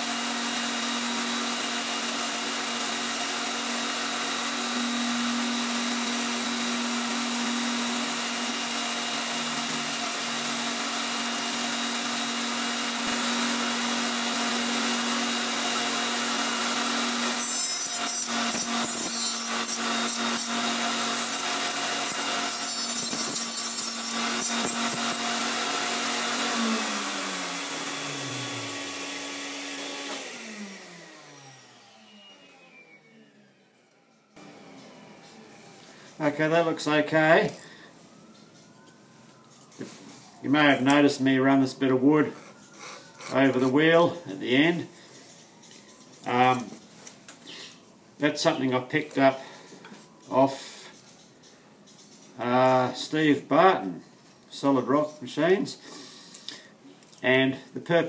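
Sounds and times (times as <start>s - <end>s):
wood rasping on grinding wheel: 0.0s - 32.1s
grinder whining: 0.0s - 38.9s, 39.6s - 46.8s.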